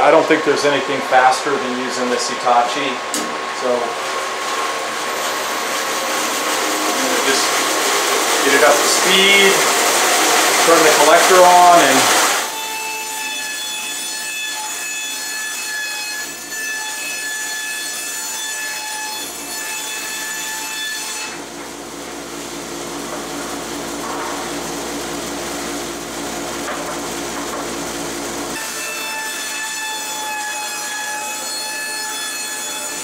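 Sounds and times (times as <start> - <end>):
dust collector rushing: 0.0 - 12.5, 21.4 - 28.6
machine whine: 0.0 - 12.7
bandsaw ripping boards: 3.6 - 33.0.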